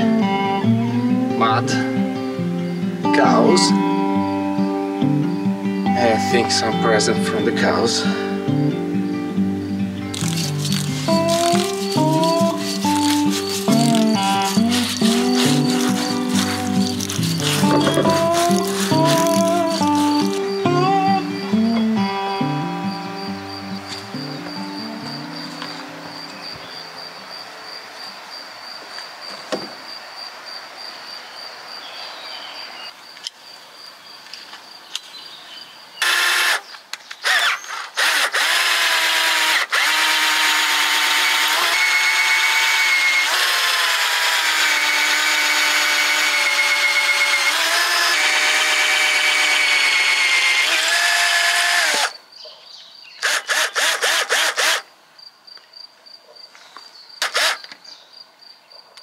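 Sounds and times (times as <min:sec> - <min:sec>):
electric drill whine: 0:10.1 - 0:21.9, 0:36.0 - 0:52.2, 0:53.2 - 0:54.9, 0:57.2 - 0:57.8.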